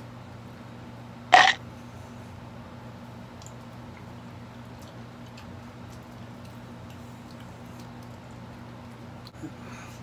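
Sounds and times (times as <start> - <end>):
biting into cookie: 1.4 - 1.6
faint chewing clicks: 3.4 - 9.4.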